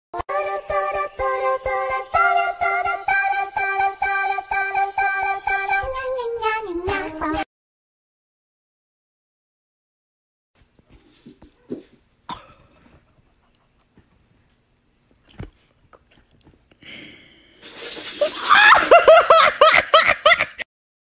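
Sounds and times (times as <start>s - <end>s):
person laughing hard: 18.2s - 20.6s.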